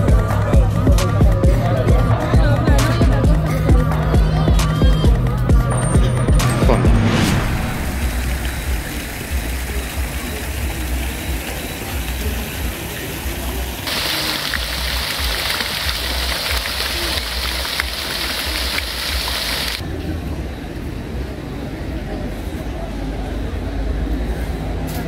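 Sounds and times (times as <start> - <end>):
low rumble: 5.5 - 11.2
fountain water splashing into pool: 7.7 - 19.8.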